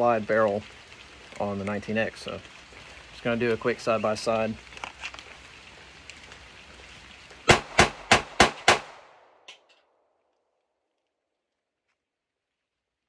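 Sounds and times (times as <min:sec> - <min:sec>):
pistol shots: 0:07.5 - 0:09.4.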